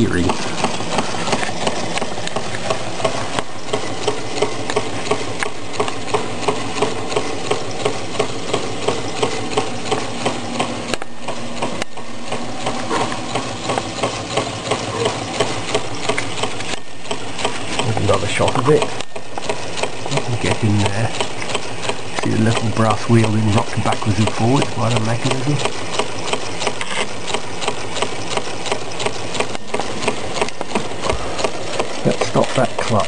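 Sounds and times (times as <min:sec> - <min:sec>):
engine knocking steadily: 0:00.0 - 0:33.0.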